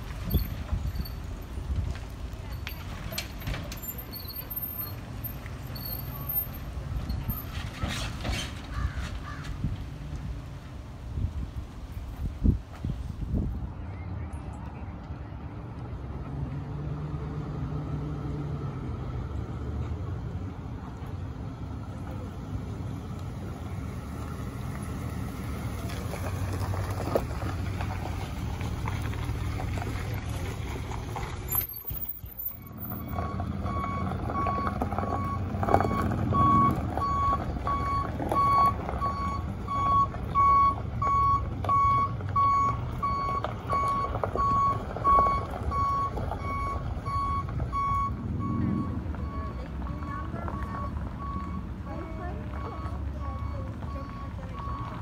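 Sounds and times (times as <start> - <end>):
backup alarm beeping: 32.7 - 55.0.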